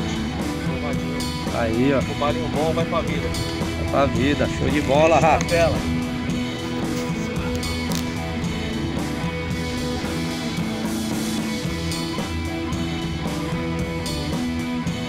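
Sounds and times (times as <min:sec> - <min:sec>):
electric guitar rock music: 0:00.0 - 0:15.0.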